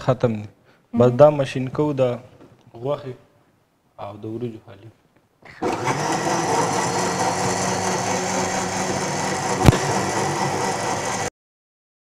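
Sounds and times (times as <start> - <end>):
blender running: 5.6 - 11.3.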